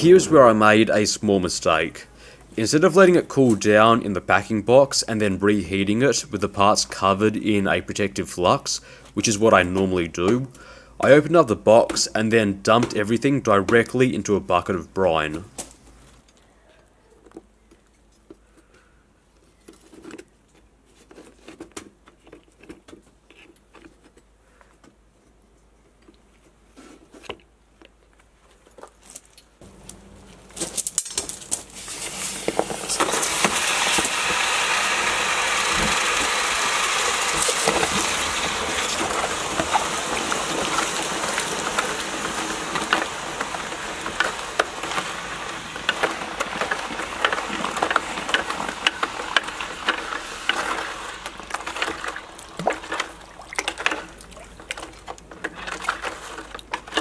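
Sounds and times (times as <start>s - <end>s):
hot steel sizzling in brine: 31.5s - 54.9s.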